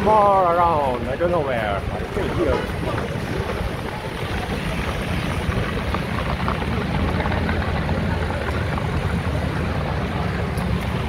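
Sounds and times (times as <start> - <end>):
scooter engines rumbling: 0.0 - 11.0
street traffic: 0.0 - 11.0.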